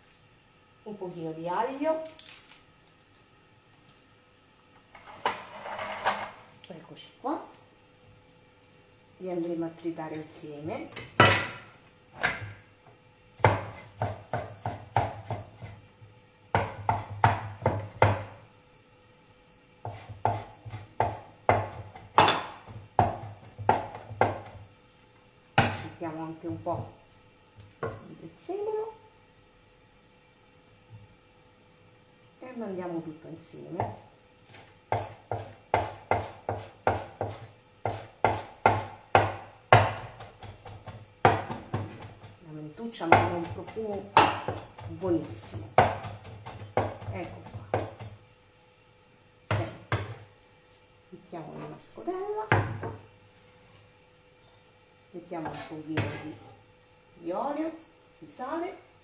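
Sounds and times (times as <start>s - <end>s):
knife chopping on wooden board: 13.4s - 15.8s, 16.5s - 18.4s, 19.8s - 24.6s, 25.6s - 26.0s, 33.8s - 42.4s, 43.0s - 48.2s, 49.5s - 50.3s, 55.4s - 56.4s.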